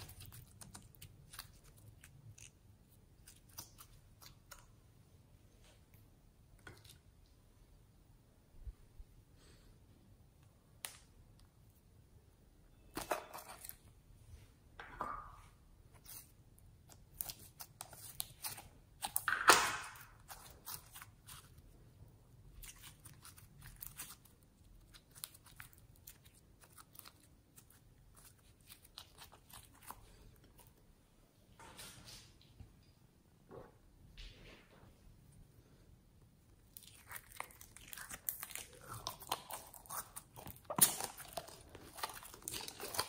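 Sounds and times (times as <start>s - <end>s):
slime crackling and tearing: 22.6s - 30.0s, 36.6s - 43.0s.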